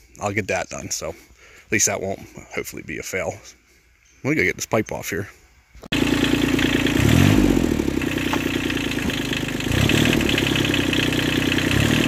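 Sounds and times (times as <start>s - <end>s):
tractor diesel engine running: 5.9s - 12.0s.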